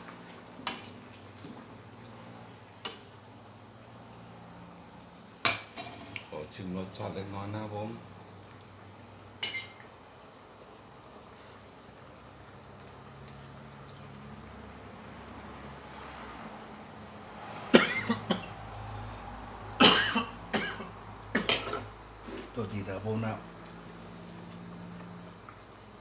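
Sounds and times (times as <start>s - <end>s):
crickets chirping: 0.0s - 26.0s
man coughing: 17.7s - 18.5s, 19.8s - 21.8s.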